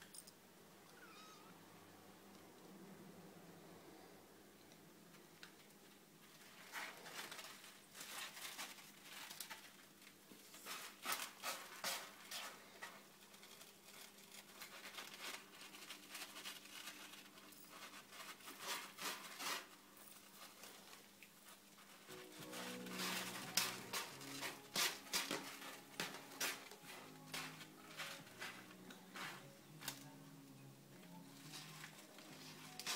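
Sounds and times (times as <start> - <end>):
kittens' paws scratching: 6.2 - 30.2, 31.1 - 32.9.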